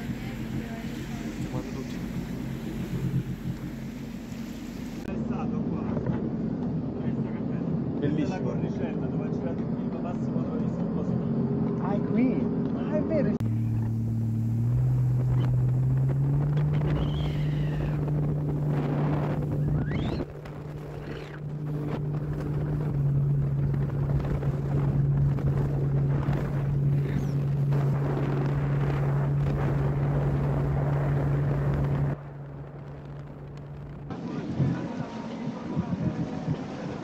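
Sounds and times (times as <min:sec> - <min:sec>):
jet ski engine running: 0:00.0 - 0:10.8, 0:11.4 - 0:37.0
wind on microphone: 0:13.4 - 0:37.0.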